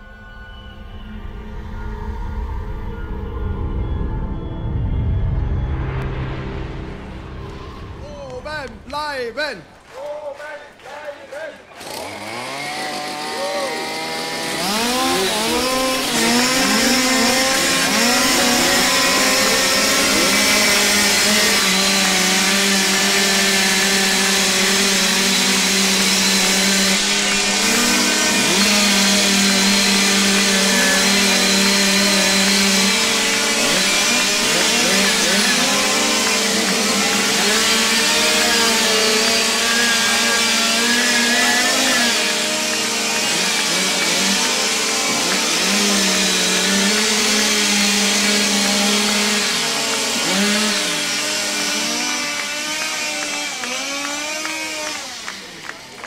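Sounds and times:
chainsaws revving: 11.7s - 56.0s.

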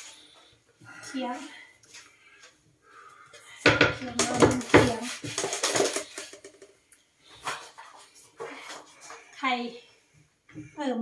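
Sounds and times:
packages knocking and clattering: 3.6s - 6.8s.

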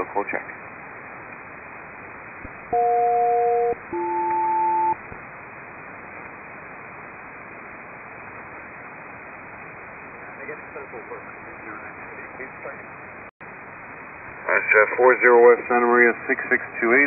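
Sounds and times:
radio static hiss: 0.0s - 17.0s
two-tone radio signal chords: 2.7s - 5.0s.

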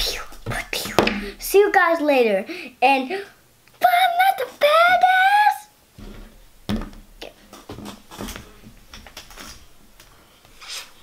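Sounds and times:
brief scrape: 10.6s - 11.0s.

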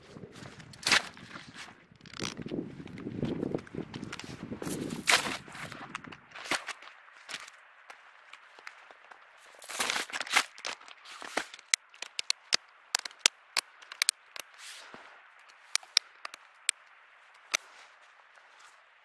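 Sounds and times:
binding straps clicking: 2.0s - 3.0s, 9.6s - 14.6s, 15.4s - 16.8s
brief rustle: 4.0s - 7.5s, 9.5s - 16.4s.

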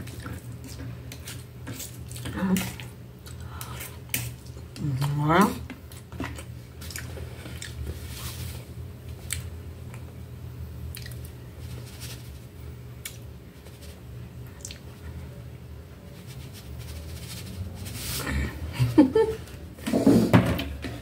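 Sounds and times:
steady low hum: 0.0s - 21.0s
flour sprinkling rustle: 7.9s - 8.8s, 11.5s - 12.7s, 13.3s - 14.2s, 15.8s - 19.2s.

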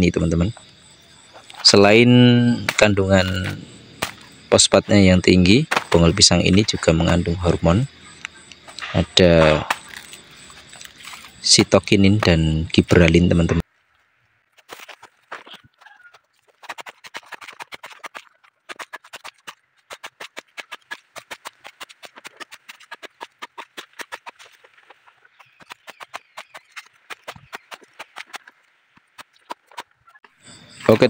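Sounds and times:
machete chopping on wooden block: 25.4s - 28.4s.

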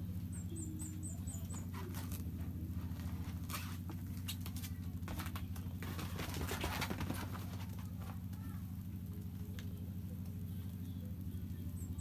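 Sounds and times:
steady low hum: 0.0s - 12.0s
kitten paws scratching on floor: 1.6s - 8.4s.

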